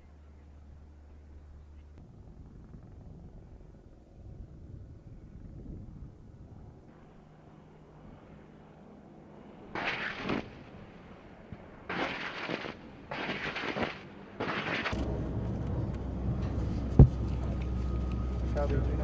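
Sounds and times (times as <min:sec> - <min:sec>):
steady low rumble: 0:00.0 - 0:09.8, 0:14.2 - 0:19.0
chain gun firing bursts: 0:11.9 - 0:15.0.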